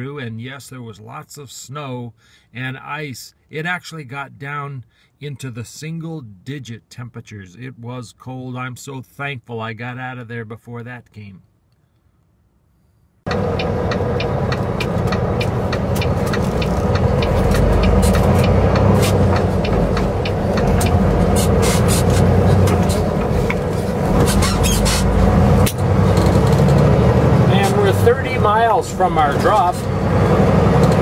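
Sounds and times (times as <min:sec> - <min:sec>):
cab clicks and rattles: 0:13.3 - 0:28.1
truck engine and road noise: 0:13.3 - 0:31.0.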